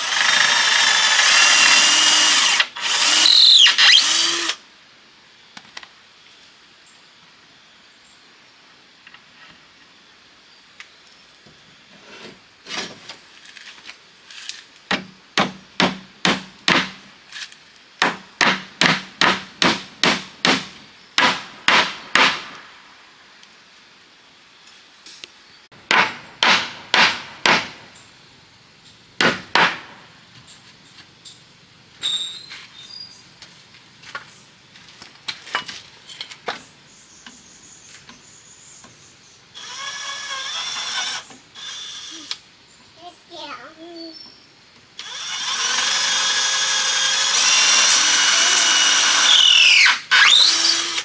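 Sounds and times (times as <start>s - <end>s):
hammer striking wood: 14.9s - 17.0s, 18.0s - 22.6s, 25.9s - 27.8s, 29.2s - 30.0s.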